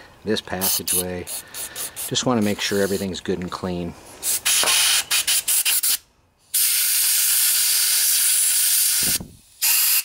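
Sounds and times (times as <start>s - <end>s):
compressed air blow gun hissing: 0.6s - 3.1s, 4.2s - 10.0s.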